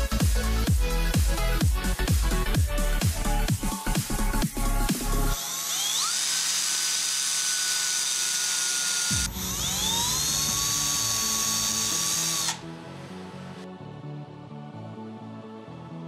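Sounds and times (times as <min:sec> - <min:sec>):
power drill boring holes: 0:05.3 - 0:12.7.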